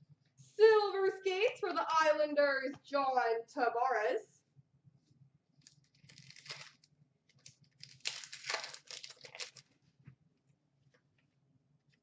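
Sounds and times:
card pack wrapper crinkling: 0:05.6 - 0:09.8.

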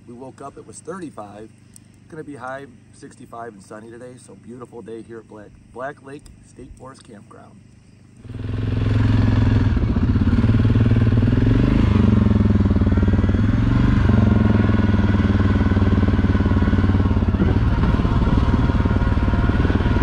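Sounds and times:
quad bike engine running: 0:08.2 - 0:20.0.

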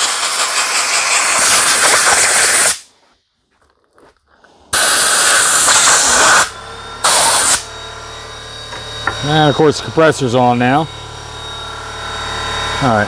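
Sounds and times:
compressed air blow gun hissing: 0:00.0 - 0:02.9, 0:04.7 - 0:07.6.

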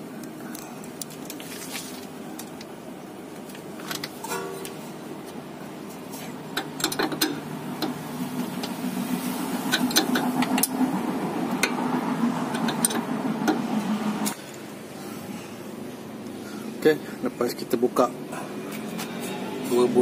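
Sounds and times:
steady low hum: 0:00.0 - 0:20.0
spanner metallic clicks: 0:06.6 - 0:08.0.

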